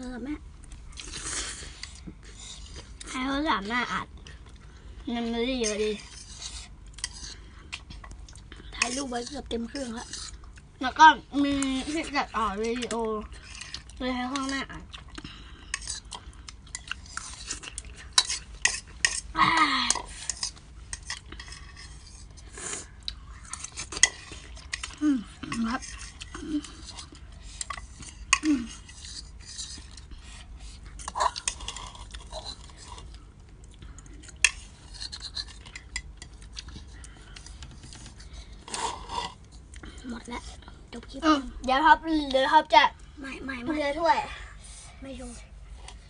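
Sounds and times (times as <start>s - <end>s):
cutlery clinking against a bowl: 16.7s - 19.2s.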